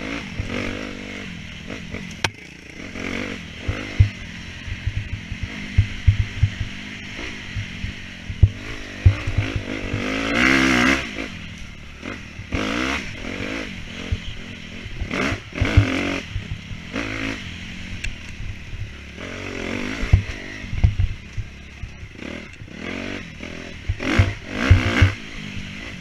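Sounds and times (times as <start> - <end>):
dirt bike engine revving: 0.0 - 26.0
bike knocks and clatter: 4.9 - 6.8, 7.5 - 10.1.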